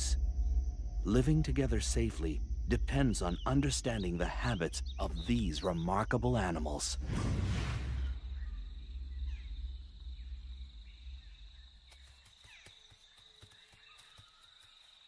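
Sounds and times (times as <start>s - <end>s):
faint bird chirps: 0.0s - 7.0s, 7.8s - 15.0s
insect trilling: 0.0s - 7.0s, 8.0s - 15.0s
low rumble: 0.0s - 11.9s.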